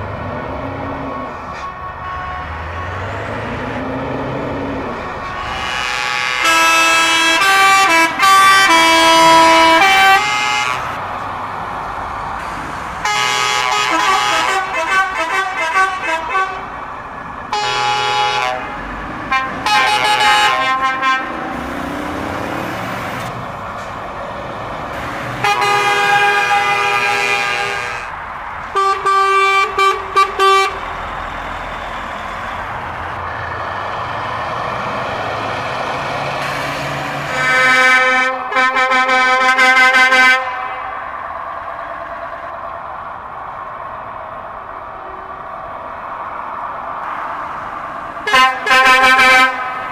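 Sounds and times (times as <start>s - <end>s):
musical truck air horns: 1.2s - 4.0s, 5.2s - 11.0s, 13.0s - 16.8s, 17.5s - 21.6s, 25.0s - 30.9s, 36.4s - 41.1s, 48.2s - 49.9s.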